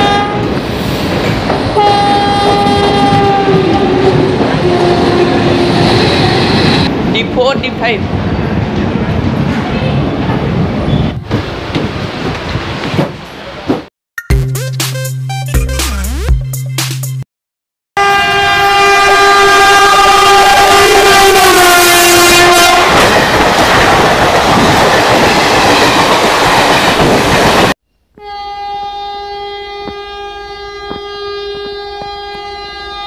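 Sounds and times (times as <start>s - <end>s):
distant train horn: 0.0s - 0.6s, 1.8s - 6.8s, 18.0s - 23.4s, 28.2s - 33.0s
loud train horn: 0.0s - 0.6s, 1.7s - 6.8s, 18.0s - 23.5s, 28.2s - 33.0s
train rushing and rattling: 0.0s - 13.9s, 19.5s - 27.8s, 29.6s - 33.0s.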